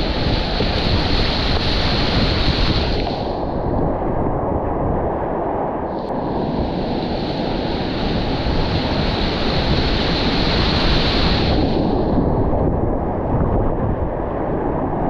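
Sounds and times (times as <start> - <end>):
bright water hiss: 0.0 - 3.5, 6.0 - 12.2
river rapid rushing: 0.0 - 3.6, 6.1 - 12.2.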